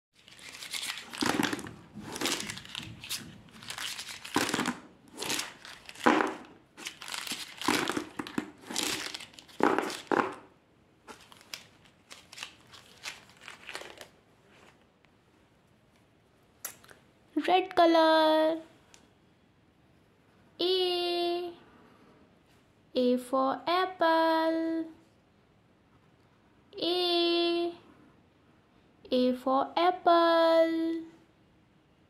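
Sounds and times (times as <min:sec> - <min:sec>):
plastic pens rattling together: 0:00.2 - 0:10.4, 0:11.1 - 0:14.1.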